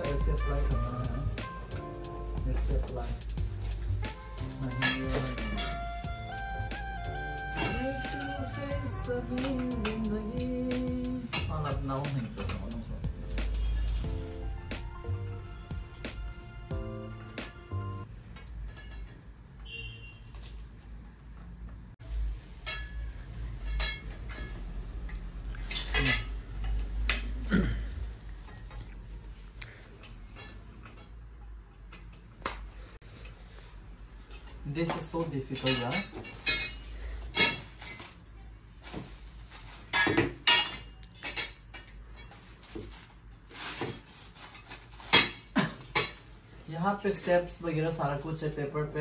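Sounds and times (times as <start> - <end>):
metal rack tubes clinking: 2.4 - 6.4, 7.5 - 14.1, 22.4 - 27.3, 34.2 - 38.3, 39.7 - 43.0.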